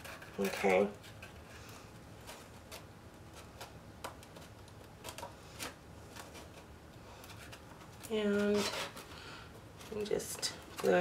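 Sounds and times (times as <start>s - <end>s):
cardstock rustling: 2.1s - 11.0s.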